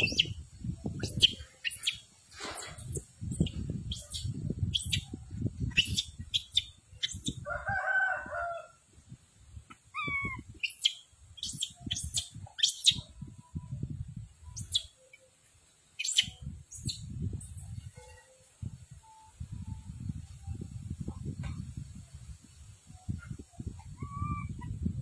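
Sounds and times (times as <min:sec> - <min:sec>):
sharp high chirps: 0:00.0 - 0:02.0, 0:02.6 - 0:05.1, 0:05.7 - 0:07.4, 0:10.0 - 0:13.1, 0:14.5 - 0:15.1, 0:16.0 - 0:17.7
rooster crowing: 0:07.4 - 0:08.8.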